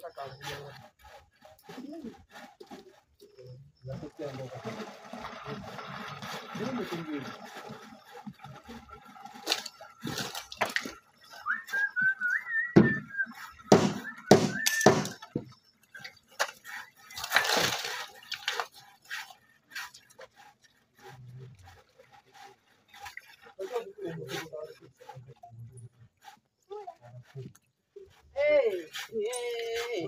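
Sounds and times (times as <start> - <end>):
timber poles knocking: 9.3 - 15.6
short wavering whistle: 11.3 - 15.3.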